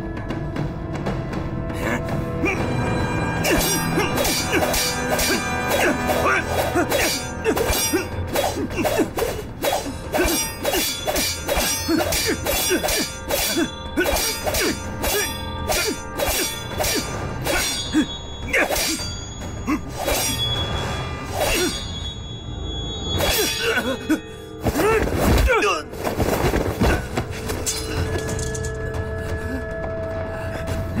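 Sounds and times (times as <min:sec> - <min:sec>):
dramatic background music: 0:00.0 - 0:31.0
sword blades clashing: 0:03.4 - 0:22.2, 0:23.2 - 0:25.7.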